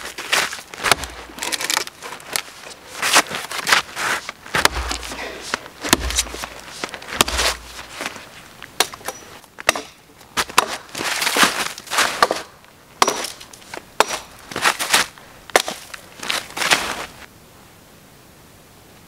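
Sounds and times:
snowshoes crunching in snow: 0.0 - 8.5, 14.5 - 17.3
twigs snapping: 0.0 - 17.1
wood cracking: 0.0 - 17.2.

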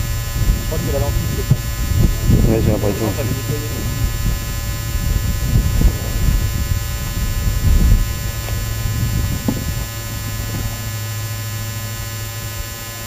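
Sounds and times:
electrical hum: 0.0 - 13.0
low rumbling on microphone: 0.0 - 13.0.

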